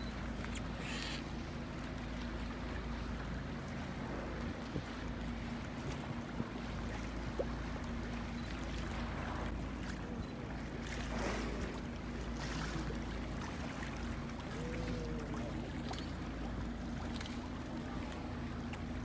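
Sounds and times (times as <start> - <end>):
boat engine drone: 0.0 - 19.0
choppy sea water: 0.0 - 19.0
wind: 0.0 - 19.0.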